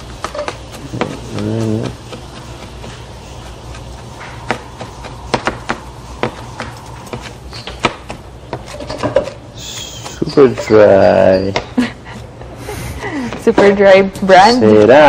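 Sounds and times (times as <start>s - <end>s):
utensils clicking and tapping: 0.0s - 11.7s
steady low hum: 0.0s - 15.0s.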